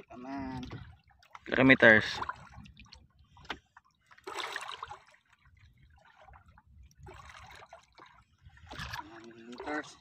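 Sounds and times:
water lapping against boat hull: 0:00.0 - 0:10.0.

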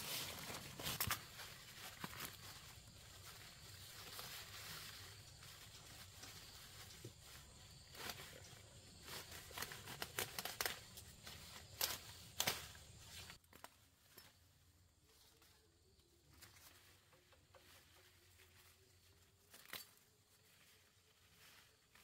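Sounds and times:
foliage rustling: 0:00.0 - 0:22.0
plant stems snapping: 0:09.2 - 0:13.8, 0:19.5 - 0:20.0.

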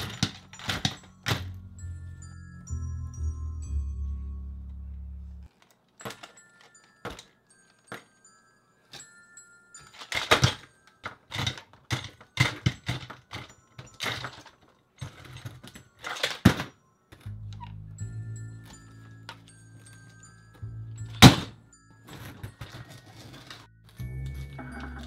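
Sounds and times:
plastic toy figures clattering: 0:00.0 - 0:01.5, 0:09.8 - 0:17.3, 0:21.2 - 0:24.0
background music: 0:00.0 - 0:05.5, 0:12.3 - 0:25.0.

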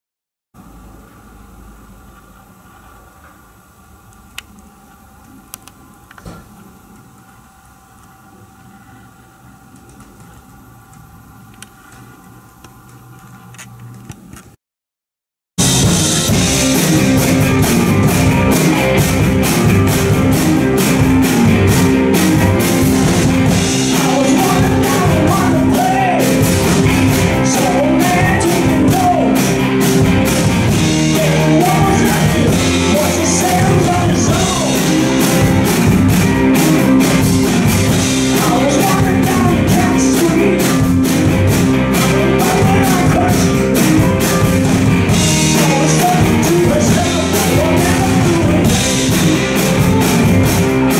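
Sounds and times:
bass guitar: 0:15.6 - 0:50.9
drum kit: 0:15.6 - 0:50.9
electric guitars: 0:15.6 - 0:50.9.

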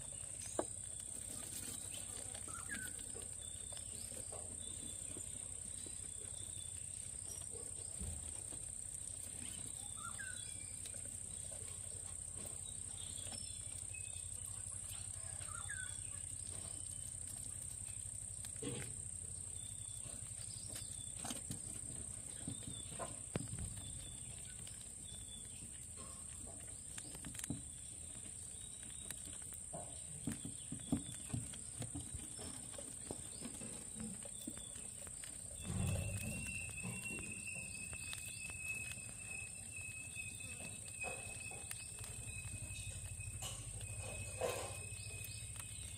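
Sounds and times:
crickets droning: 0:34.3 - 0:45.9.

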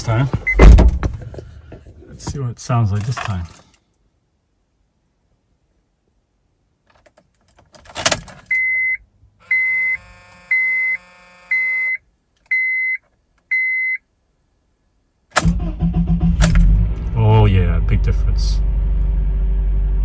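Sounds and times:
car keys jangling: 0:06.9 - 0:08.6
dashboard warning chime beeps: 0:08.5 - 0:14.0.

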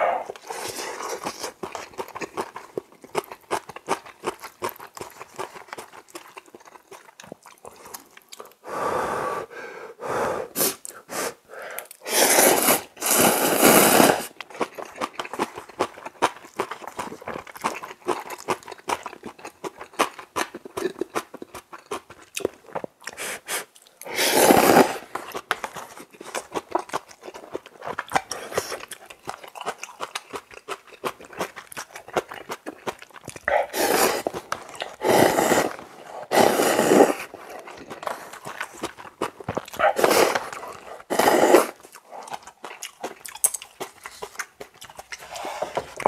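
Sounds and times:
person slurping noodles: 0:00.0 - 0:01.6, 0:08.7 - 0:11.4, 0:12.0 - 0:14.7, 0:23.2 - 0:26.2, 0:33.4 - 0:39.0, 0:39.7 - 0:42.5, 0:45.1 - 0:46.0
wet chewing and crunching: 0:00.0 - 0:08.6, 0:11.8 - 0:46.0.

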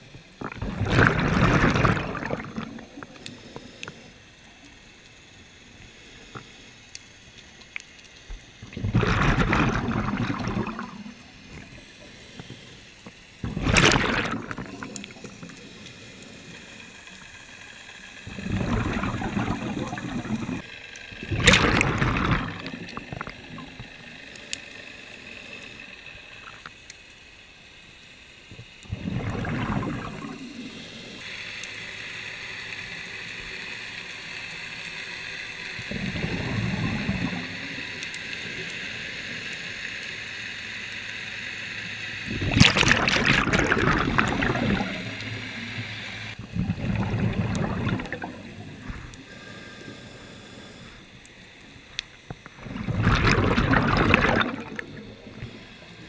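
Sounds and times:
exhaled bubbles gurgling: 0:00.3 - 0:03.3, 0:08.6 - 0:12.0, 0:13.4 - 0:16.6, 0:18.2 - 0:24.0, 0:28.8 - 0:31.2, 0:35.8 - 0:38.6, 0:42.2 - 0:49.4, 0:52.4 - 0:56.0
regulator inhale hiss: 0:02.9 - 0:07.3, 0:11.3 - 0:13.4, 0:15.1 - 0:18.4, 0:30.4 - 0:36.0, 0:48.4 - 0:52.6.

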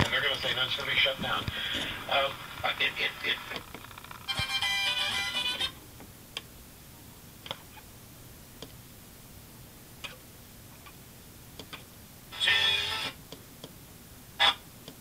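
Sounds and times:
radio broadcast: 0:00.0 - 0:03.9, 0:12.3 - 0:13.2
faint radio hiss: 0:00.0 - 0:15.0.

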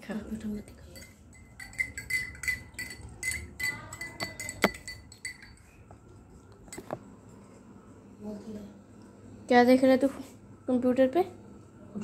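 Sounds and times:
spoon clinking against glass: 0:00.4 - 0:05.8.

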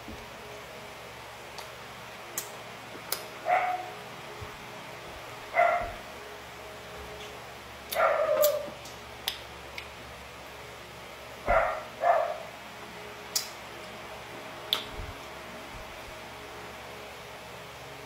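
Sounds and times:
dog barking: 0:03.4 - 0:04.0, 0:05.6 - 0:06.0, 0:07.9 - 0:08.7, 0:11.5 - 0:12.5.

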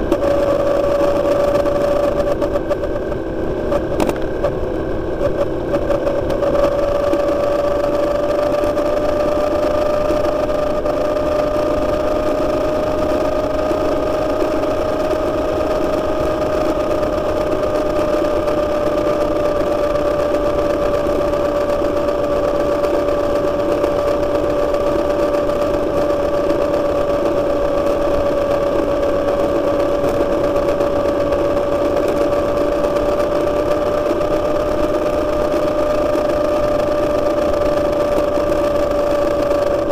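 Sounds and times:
motorcycle engine cruising: 0:00.0 - 0:39.9.

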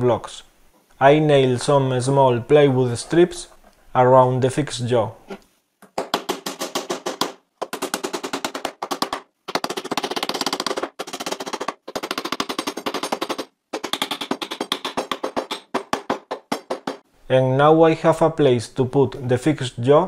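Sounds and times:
hammer driving nails into wood: 0:05.8 - 0:17.1.

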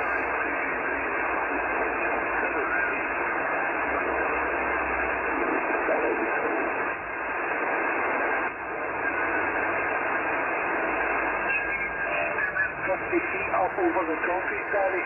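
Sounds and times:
garbled radio voices: 0:00.0 - 0:04.4, 0:05.0 - 0:08.0, 0:10.7 - 0:15.0
radio static hiss: 0:00.0 - 0:15.0.

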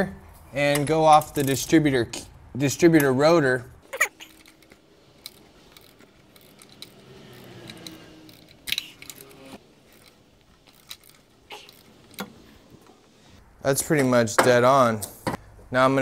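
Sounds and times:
socket wrench clicks: 0:04.2 - 0:09.4.

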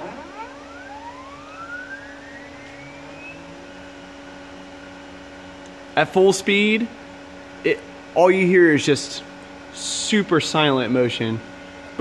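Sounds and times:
stepper motors whining: 0:00.0 - 0:04.7
steady motor hum: 0:00.0 - 0:12.0.

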